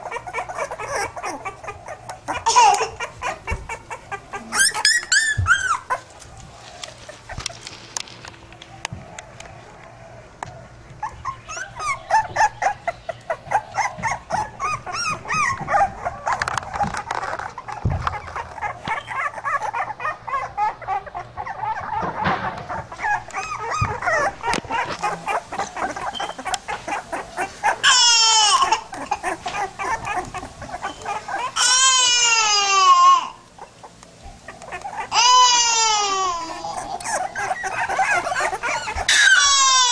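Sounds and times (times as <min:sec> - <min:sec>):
puppies whining and whimpering: 0:00.0 - 0:39.9.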